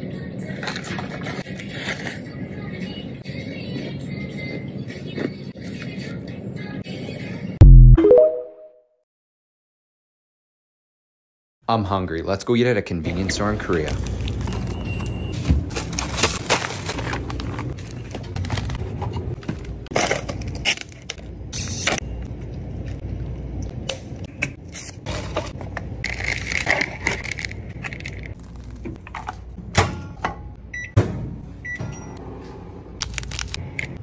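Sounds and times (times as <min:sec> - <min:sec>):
plastic packaging crinkling: 0:13.8 - 0:14.8, 0:15.4 - 0:19.0, 0:26.0 - 0:28.8
microwave oven beeps: 0:14.4 - 0:15.5, 0:30.7 - 0:32.2.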